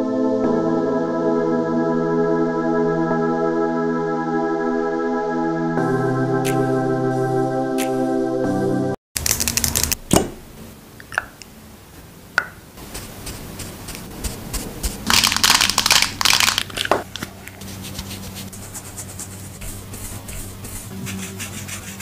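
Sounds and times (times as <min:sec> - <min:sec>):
makeup brush scratching: 0:12.8 - 0:22.0.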